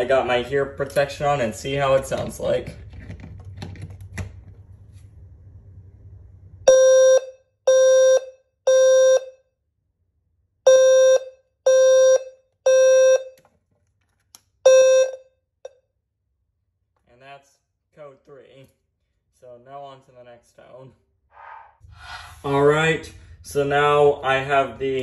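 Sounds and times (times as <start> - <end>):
low-pitched fire alarm beeps: 6.7 - 9.6, 10.6 - 13.4, 14.6 - 15.8.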